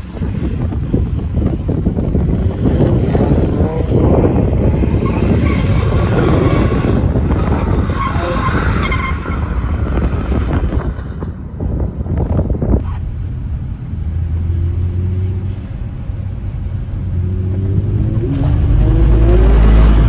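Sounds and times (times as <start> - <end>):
tyres skidding: 0.0 - 20.0
car engine revving: 12.8 - 20.0.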